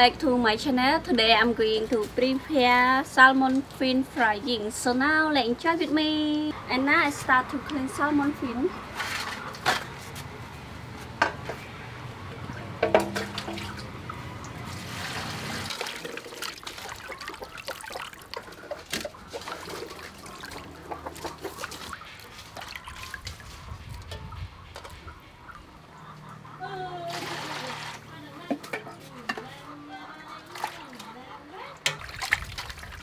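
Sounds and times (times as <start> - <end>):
water sloshing and dripping in bowl: 12.4 - 24.2, 30.4 - 33.0.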